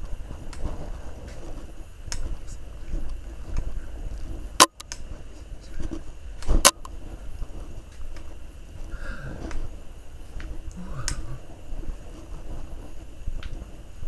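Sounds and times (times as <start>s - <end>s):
faint ticks: 0.0s - 1.5s, 10.4s - 11.3s
low rumbling handling noise: 0.0s - 14.0s.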